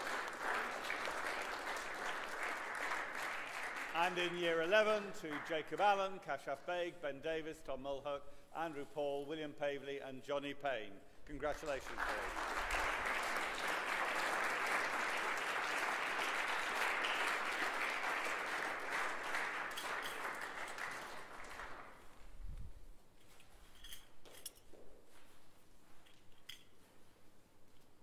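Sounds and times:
audience applauding: 0.0s - 5.8s, 11.6s - 22.1s.

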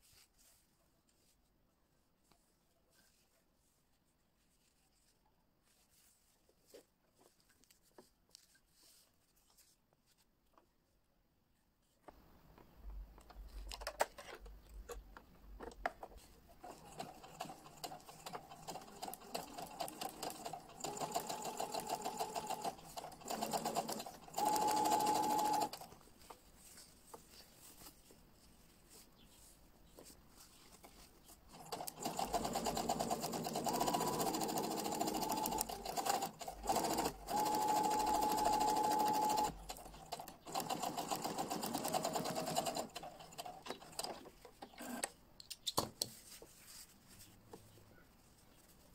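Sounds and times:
sewing machine stitching: 16.6s - 25.9s, 31.5s - 45.1s.

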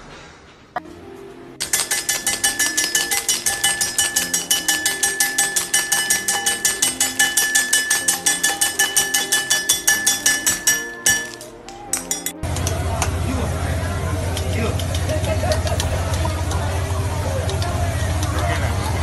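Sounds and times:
faint steady ringing: 1.6s - 14.6s.

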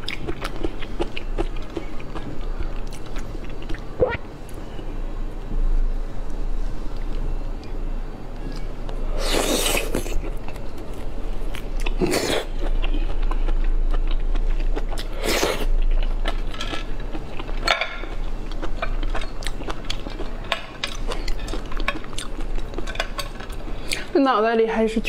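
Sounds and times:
close chewing sounds: 0.0s - 3.9s, 8.5s - 24.1s.

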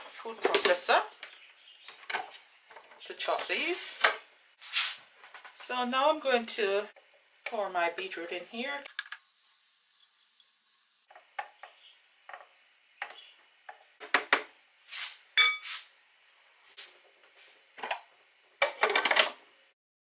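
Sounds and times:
glass clink: 15.4s - 15.7s.

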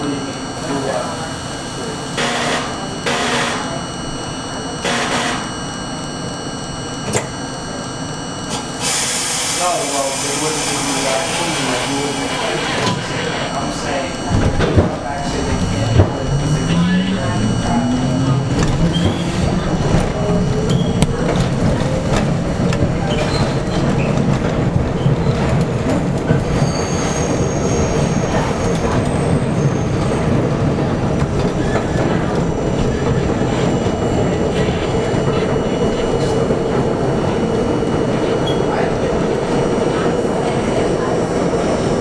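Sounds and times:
subway train idling whine: 0.0s - 42.0s
high wheel squeals: 15.3s - 19.6s, 26.5s - 30.2s.

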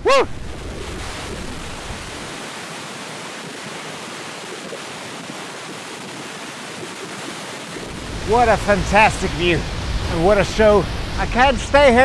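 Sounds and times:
low rumble: 0.0s - 2.4s, 7.8s - 11.8s
waterfall rushing: 0.0s - 12.0s.

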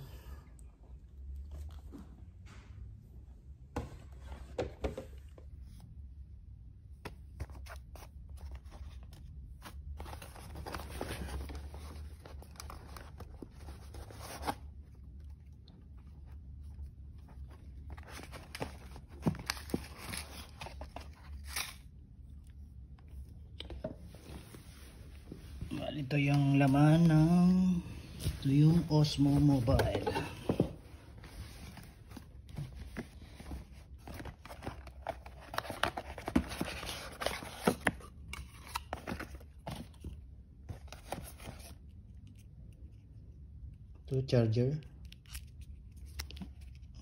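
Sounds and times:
low steady hum: 0.0s - 47.0s
cardboard box rustling and scraping: 28.1s - 38.0s.

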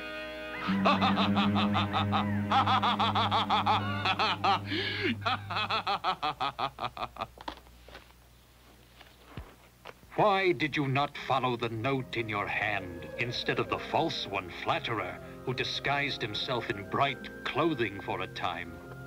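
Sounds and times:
low held musical tone: 0.0s - 5.5s, 10.1s - 19.0s
cartoon villain cackling laugh: 0.6s - 7.3s.

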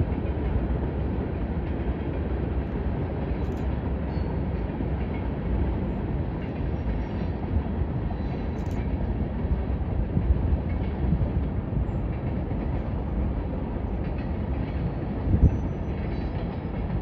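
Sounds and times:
freight train cars rumbling on rails: 0.0s - 17.0s.

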